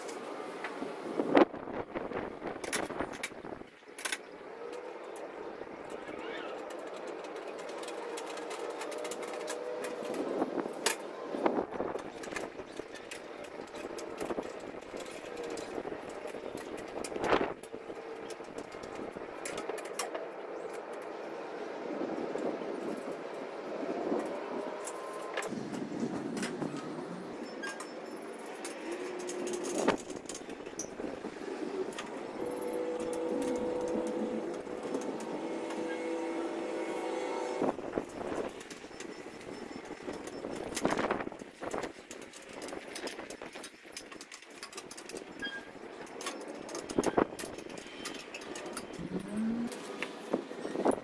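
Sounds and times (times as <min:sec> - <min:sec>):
metal panels and screws rattling: 0:02.1 - 0:21.0, 0:26.2 - 0:36.4, 0:37.8 - 0:51.0
metal parts clinking: 0:27.4 - 0:35.4.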